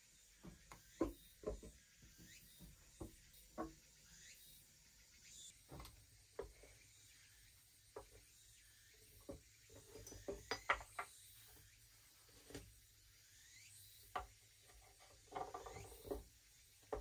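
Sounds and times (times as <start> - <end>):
soft knocks and taps: 2.6 - 3.8.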